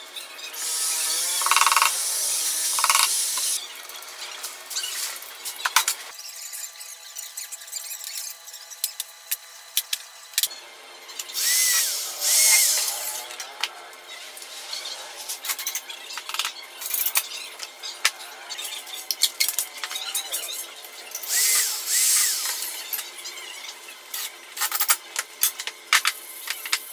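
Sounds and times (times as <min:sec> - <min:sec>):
electric drill whining: 0:00.5 - 0:03.6, 0:11.2 - 0:13.6, 0:21.2 - 0:23.0.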